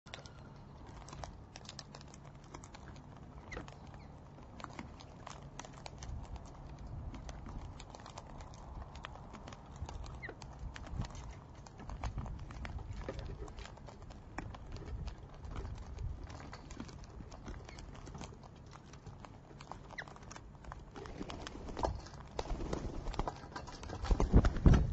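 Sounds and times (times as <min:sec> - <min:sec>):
birds pecking and cracking seed: 0:00.1 - 0:24.9
steady low rumble: 0:00.6 - 0:17.8.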